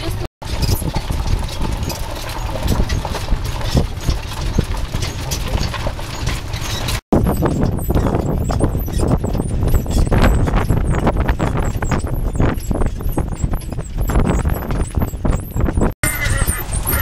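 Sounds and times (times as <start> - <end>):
hooves clip-clopping on gravel: 0.4 - 17.0
steady low rumble: 7.2 - 17.0.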